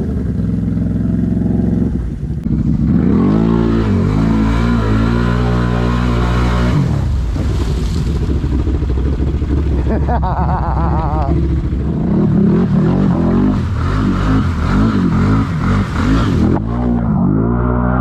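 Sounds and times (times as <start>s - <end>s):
atv engine revving: 0.0s - 18.0s
water spraying: 4.0s - 11.9s, 12.5s - 17.0s.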